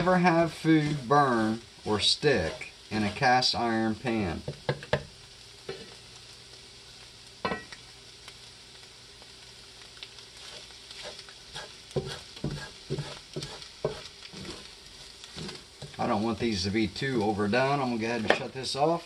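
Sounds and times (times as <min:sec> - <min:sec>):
wooden spatula scraping a pan: 0:00.0 - 0:04.5, 0:05.7 - 0:06.0, 0:10.4 - 0:16.2
eggs sizzling in hot oil: 0:00.0 - 0:19.0
spatula knocking on pan: 0:04.4 - 0:05.1, 0:12.0 - 0:14.6.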